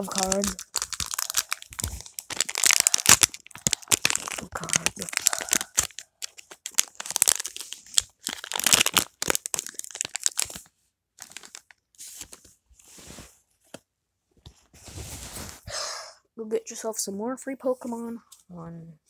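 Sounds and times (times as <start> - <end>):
foil wrapper tearing and crinkling: 0.0 - 12.5.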